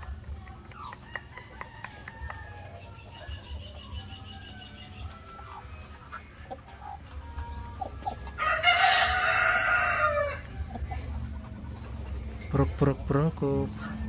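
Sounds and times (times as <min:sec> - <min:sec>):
chicken calls: 0:00.0 - 0:14.0
rooster crowing: 0:08.4 - 0:10.6.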